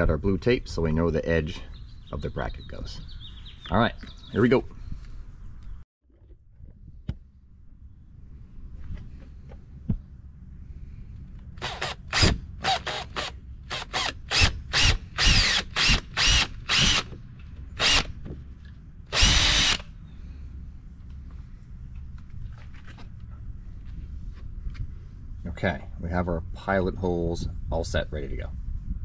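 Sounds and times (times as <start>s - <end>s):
cordless drill running: 11.6s - 17.2s, 17.8s - 18.1s, 19.1s - 19.9s.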